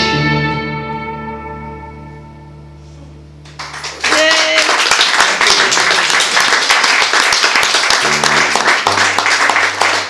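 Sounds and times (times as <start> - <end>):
audience clapping: 3.4 - 10.0
held electric guitar notes: 7.9 - 10.0.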